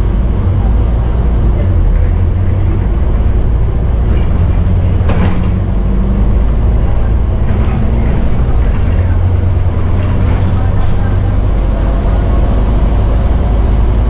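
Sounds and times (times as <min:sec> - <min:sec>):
bus diesel engine drone: 0:00.0 - 0:14.0
road noise: 0:00.0 - 0:14.0.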